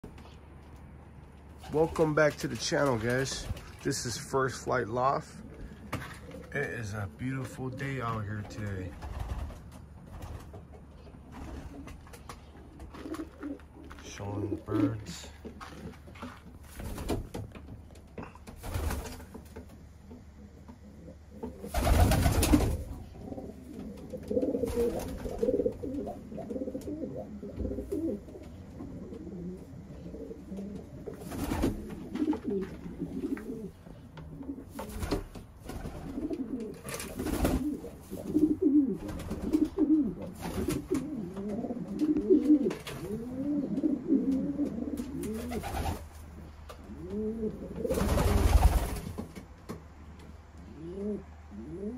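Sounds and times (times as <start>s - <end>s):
pigeons cooing: 11.4s - 16.1s, 20.3s - 48.9s, 50.6s - 51.9s.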